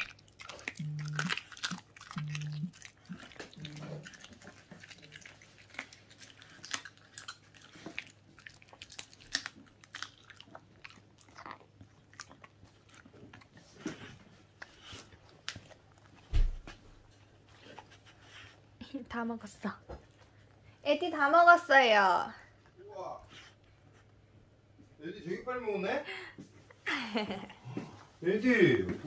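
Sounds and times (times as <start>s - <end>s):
dog chewing and crunching bones: 0.0s - 18.6s.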